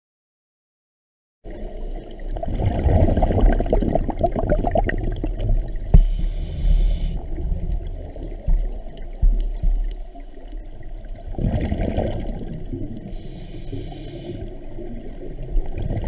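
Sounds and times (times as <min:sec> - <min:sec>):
bubbling exhaled air underwater: 0:01.5 - 0:16.0
hissing regulator inhalation: 0:05.9 - 0:08.5, 0:13.0 - 0:14.7.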